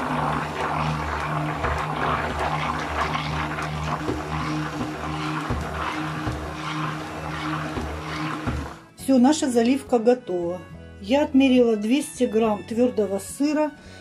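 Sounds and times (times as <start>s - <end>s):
liquid churning: 0.0s - 9.0s
stick blender motor hum: 0.0s - 9.0s.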